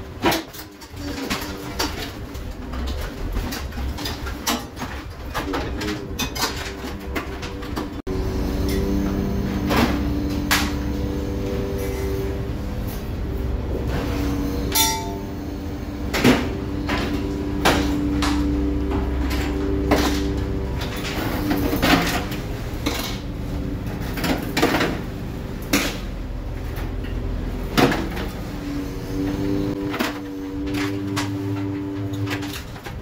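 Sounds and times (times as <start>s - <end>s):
boat machinery hum and rumble: 0.0s - 33.0s
sharp metallic clanks: 14.2s - 23.2s.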